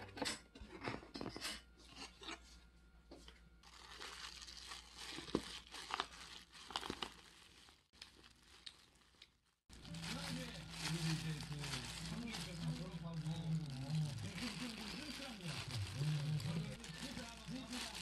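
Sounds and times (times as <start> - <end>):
plastic glove crinkling: 3.6 - 18.0.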